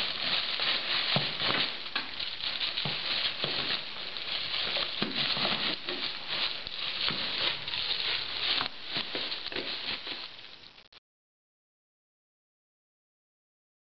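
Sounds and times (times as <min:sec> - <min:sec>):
cellophane crinkling: 0:00.0 - 0:11.0.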